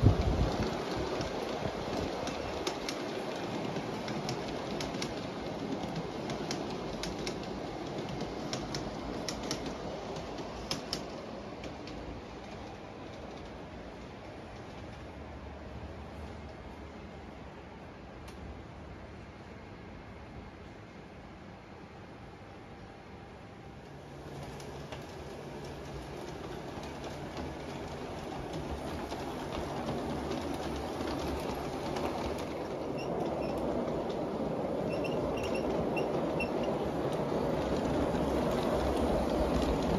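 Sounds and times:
wheels clicking over rail joints: 0:00.0 - 0:15.2, 0:24.1 - 0:39.9
model train rolling: 0:00.0 - 0:17.4, 0:22.3 - 0:39.9.

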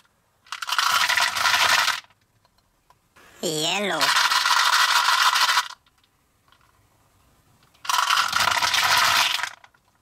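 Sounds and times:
candies pouring into plastic tray: 0:00.5 - 0:02.1, 0:07.8 - 0:09.8.

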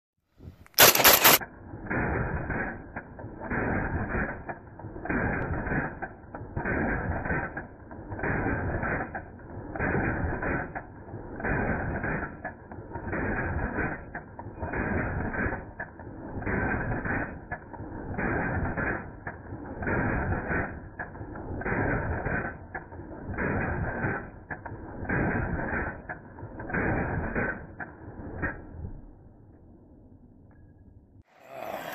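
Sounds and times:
short sharp clicks: 0:00.6 - 0:01.4
slowed gunshot booms: 0:00.7 - 0:29.2.

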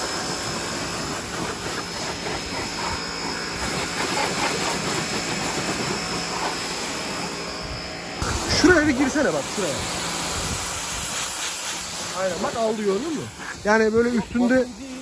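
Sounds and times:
pressure washer spraying water: 0:00.0 - 0:15.0.

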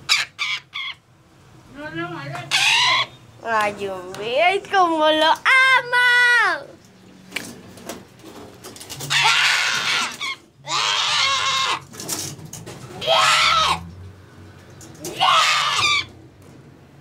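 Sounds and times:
parrot squawking: 0:00.0 - 0:01.1, 0:02.4 - 0:03.3, 0:09.1 - 0:11.9, 0:13.0 - 0:13.8, 0:15.1 - 0:16.1.

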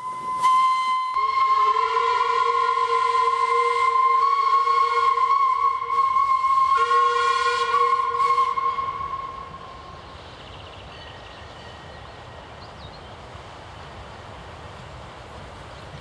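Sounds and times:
steam locomotive whistle blast: 0:00.0 - 0:09.9.

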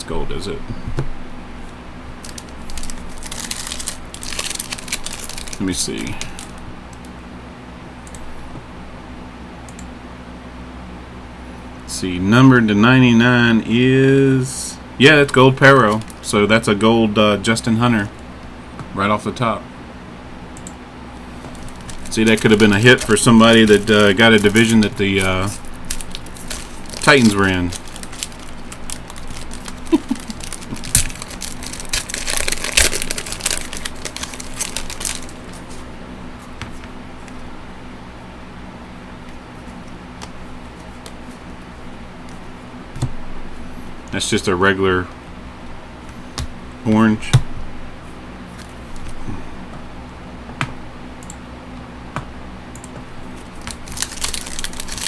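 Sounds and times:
wrapper crinkling: 0:02.2 - 0:06.6, 0:21.5 - 0:35.9, 0:53.4 - 0:55.0.

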